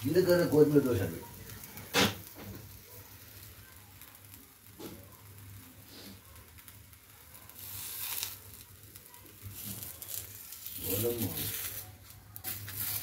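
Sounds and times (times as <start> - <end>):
faint sizzling: 0.0 - 13.0.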